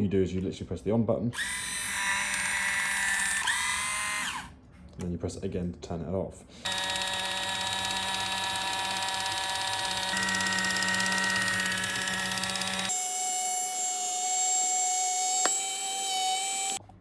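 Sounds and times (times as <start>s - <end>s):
electric can opener motor whine: 1.4s - 4.5s, 6.7s - 16.8s.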